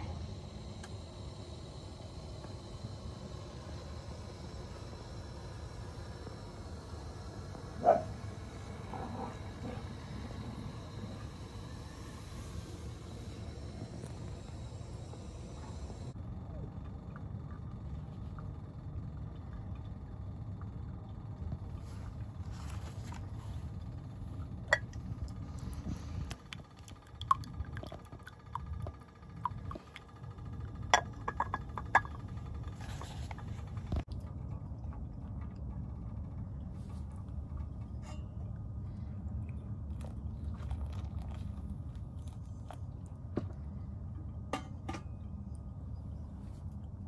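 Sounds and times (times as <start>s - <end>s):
propane burner roaring: 0.0s - 47.0s
ceramic dripper and mug clinking: 31.0s - 32.2s.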